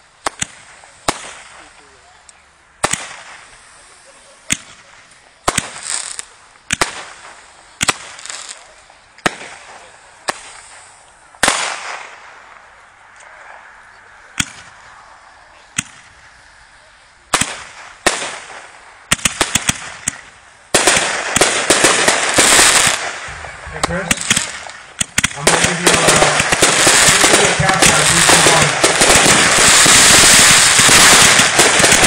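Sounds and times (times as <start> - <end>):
fireworks bangs: 0.0 - 2.0, 2.8 - 12.8, 14.2 - 16.4, 17.3 - 32.0
fireworks crackling: 0.0 - 32.0.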